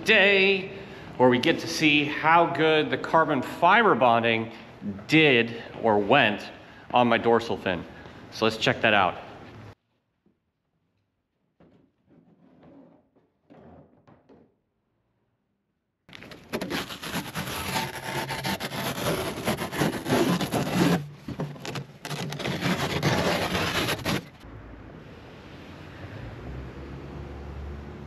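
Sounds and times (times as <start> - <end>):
peel ply tearing: 16.1 - 24.4.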